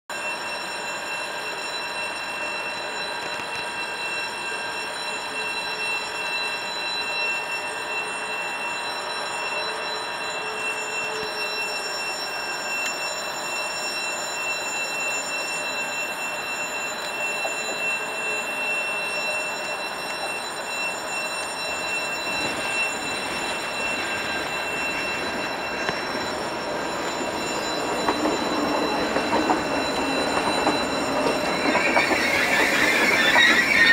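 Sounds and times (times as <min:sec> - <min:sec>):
electric train running noise: 0:00.2 - 0:33.9
high whining tones: 0:16.2 - 0:33.9.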